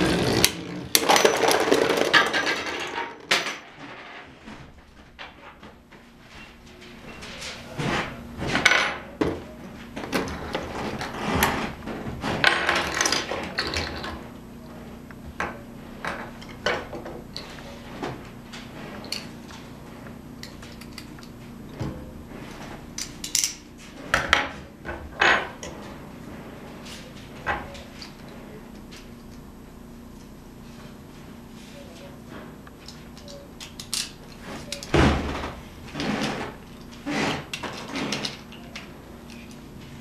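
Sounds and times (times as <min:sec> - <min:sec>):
plastic and metal parts clattering: 0:01.0 - 0:04.3.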